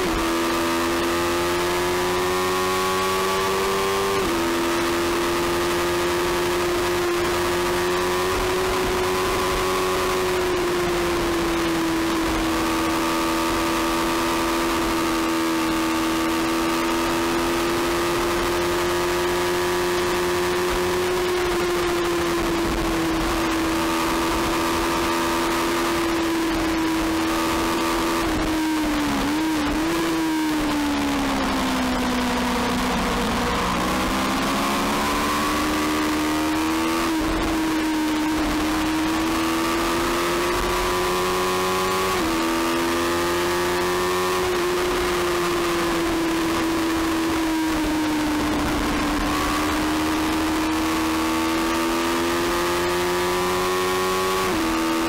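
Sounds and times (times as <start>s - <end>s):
racing motorcycle engine at high revs: 0.0s - 55.0s.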